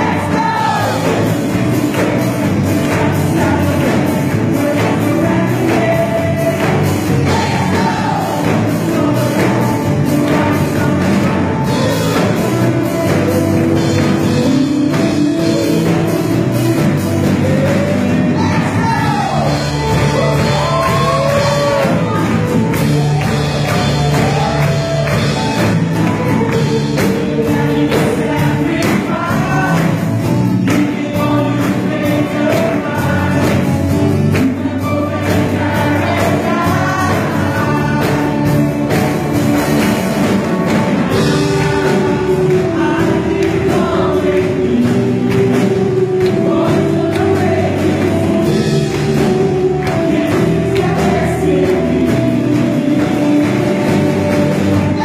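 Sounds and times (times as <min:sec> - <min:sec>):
singers singing together: 0:00.0 - 0:55.0
worship band playing upbeat song: 0:00.0 - 0:55.0.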